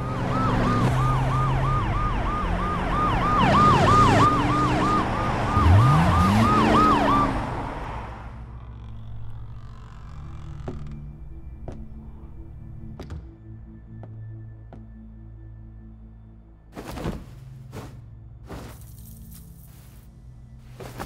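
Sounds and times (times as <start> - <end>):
police siren yelping: 0.0 - 7.7
siren wailing: 0.0 - 7.9
engine revving: 2.4 - 11.0.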